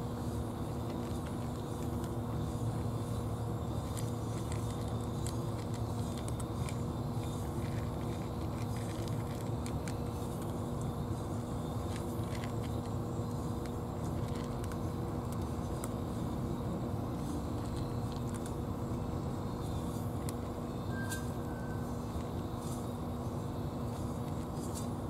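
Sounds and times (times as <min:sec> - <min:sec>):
cats crunching dry kibble: 0:00.0 - 0:25.0
low mechanical hum: 0:00.0 - 0:25.0.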